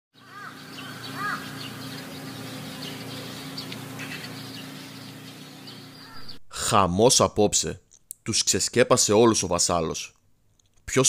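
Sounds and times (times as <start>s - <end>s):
birds calling and chirping: 0.2s - 6.5s
steady low hum: 0.3s - 8.0s.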